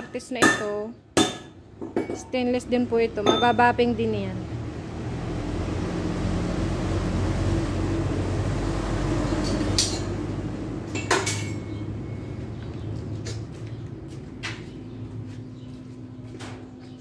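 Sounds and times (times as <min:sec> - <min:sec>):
sharp metallic clinks: 0:03.3 - 0:03.7.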